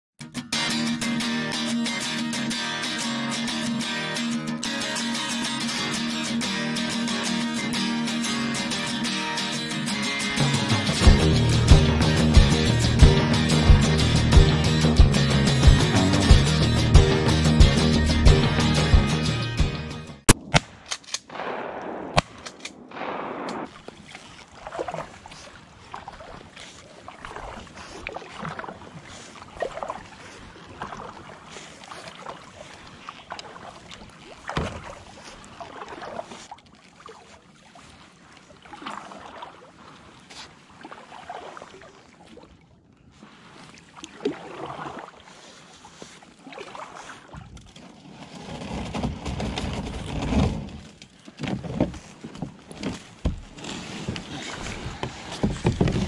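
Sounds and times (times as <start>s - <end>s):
shotgun bang: 20.3s - 23.8s
kayak paddle splashing: 22.9s - 56.0s
hull pushing through brush: 47.9s - 56.0s.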